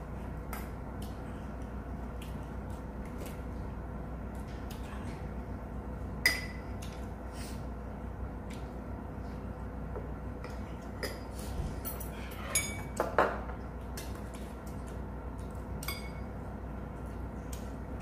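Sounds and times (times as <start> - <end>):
cutlery clinking against bowls: 10.4 - 13.4, 15.8 - 16.3.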